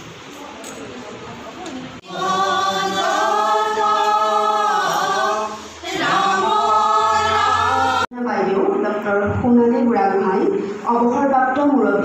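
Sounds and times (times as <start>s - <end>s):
group singing without instruments: 2.0s - 8.1s.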